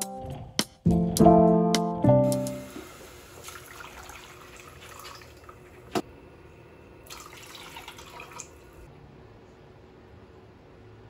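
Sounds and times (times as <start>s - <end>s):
water pouring into metal pot: 2.8s - 5.7s, 7.1s - 8.7s.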